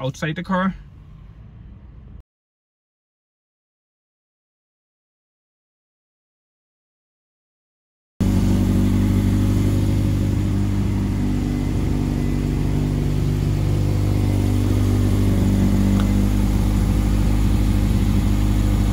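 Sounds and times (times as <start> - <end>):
car engine idling: 8.2 - 18.9.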